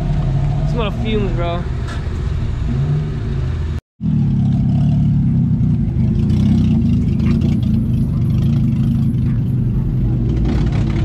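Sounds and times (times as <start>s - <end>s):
car engine rumbling: 0.0s - 11.0s.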